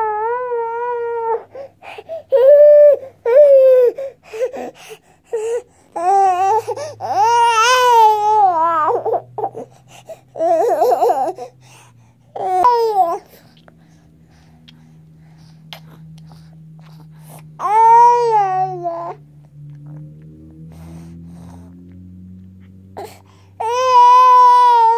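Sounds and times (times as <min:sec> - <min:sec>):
baby crying: 0:00.0 - 0:04.7, 0:05.3 - 0:09.7, 0:10.4 - 0:11.4, 0:17.6 - 0:19.2, 0:23.0 - 0:24.9.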